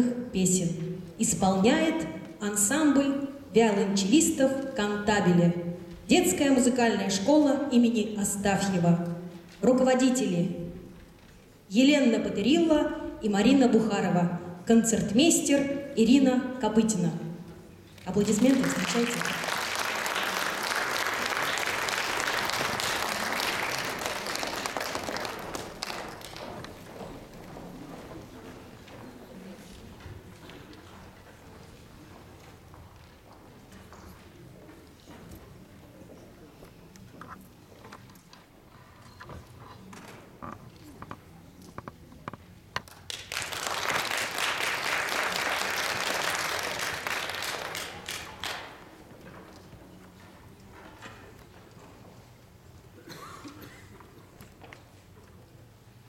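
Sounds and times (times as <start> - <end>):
audience applauding: 18.3 - 27.1, 42.9 - 48.9.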